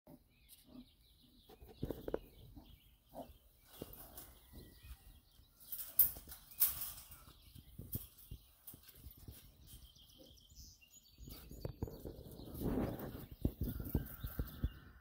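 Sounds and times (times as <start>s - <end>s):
wire mesh fence scraping and rattling: 1.7s - 10.4s, 11.2s - 15.0s.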